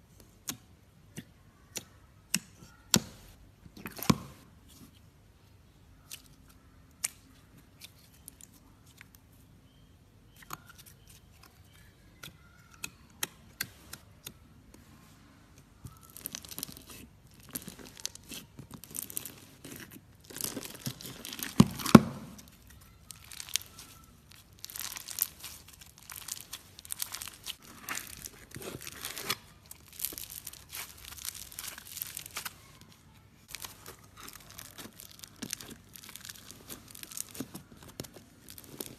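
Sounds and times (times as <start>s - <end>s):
fingers squishing slime: 0.1s - 5.1s, 5.7s - 14.9s, 15.5s - 38.9s
slime crackling and crunching: 15.8s - 38.9s.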